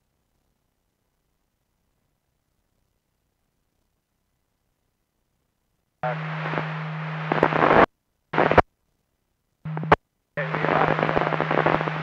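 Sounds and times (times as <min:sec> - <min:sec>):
low hum: 0:06.0 - 0:08.6, 0:09.7 - 0:12.0
radio scanner transmissions: 0:06.0 - 0:08.6, 0:09.7 - 0:12.0.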